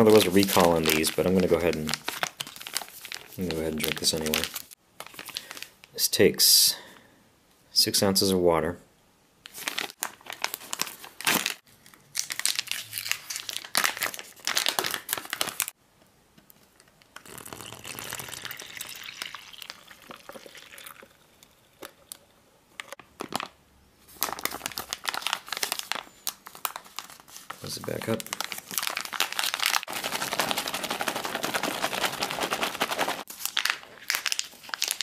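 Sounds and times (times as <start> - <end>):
plastic pouch crinkling: 0.0 - 6.0, 9.5 - 15.8, 22.9 - 35.0
water pouring: 17.3 - 22.2.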